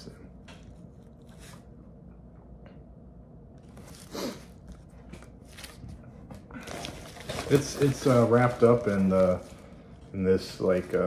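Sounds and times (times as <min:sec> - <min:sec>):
packaging rustling: 0:03.6 - 0:11.0.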